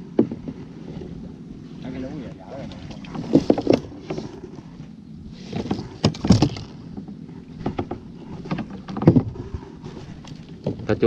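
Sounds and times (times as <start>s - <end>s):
water splashing: 1.7s - 4.8s.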